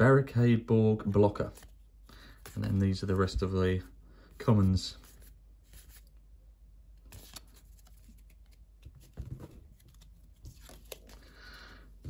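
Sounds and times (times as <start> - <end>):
cards clicking and rustling: 1.4 - 3.5, 7.0 - 11.5.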